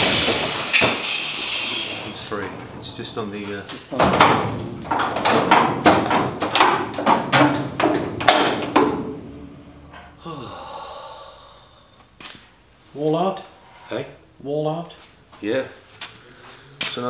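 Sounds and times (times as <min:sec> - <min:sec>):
sharp knocks and clanks: 0:00.0 - 0:10.2.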